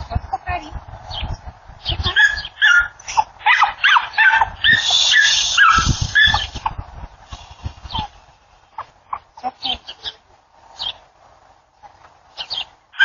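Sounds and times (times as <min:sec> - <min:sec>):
small dogs barking and yipping: 0:02.0 - 0:06.7.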